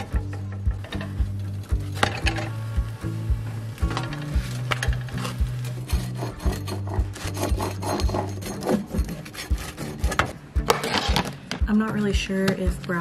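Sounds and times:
background music with beat and bass: 0:00.0 - 0:13.0
pizza cutter scraping metal pan: 0:04.2 - 0:11.3.

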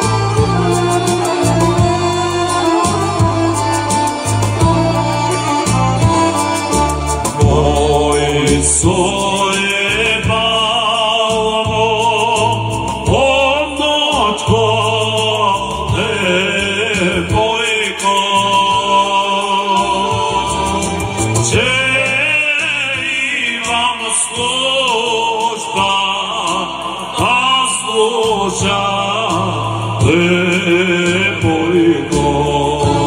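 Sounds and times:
folk instrumental accompaniment: 0:00.0 - 0:33.0
man singing folk song: 0:07.2 - 0:33.0.

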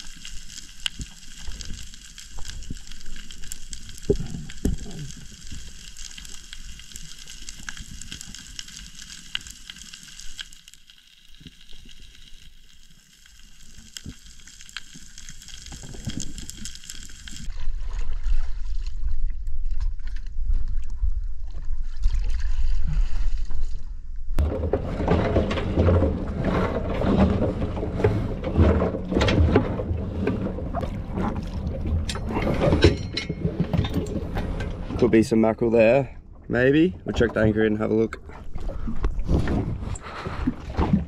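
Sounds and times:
underwater reef crackle: 0:00.0 - 0:17.5, 0:24.4 - 0:41.0
water sloshing against hull: 0:17.5 - 0:41.0
splashing and knocking: 0:24.4 - 0:35.1, 0:38.3 - 0:41.0.

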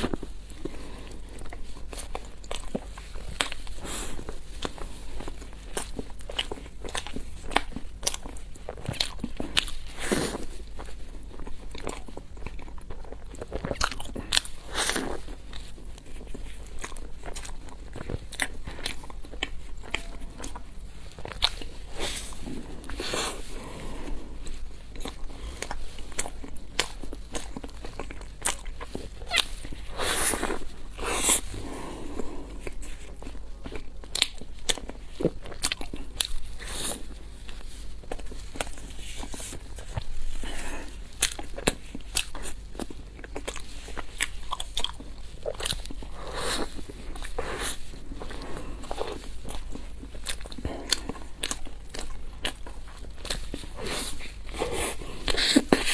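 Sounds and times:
chewing: 0:00.0 - 0:55.9
crunching crispy pastry: 0:00.0 - 0:55.9.

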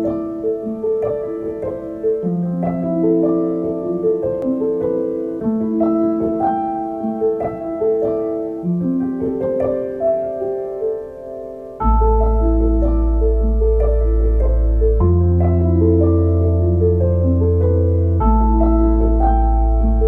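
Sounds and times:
calm piano music: 0:00.0 - 0:20.0.

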